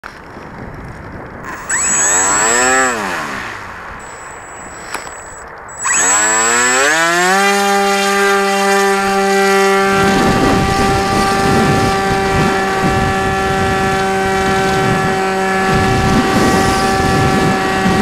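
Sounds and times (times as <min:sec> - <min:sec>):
drone motors whining: 0:01.5 - 0:09.3.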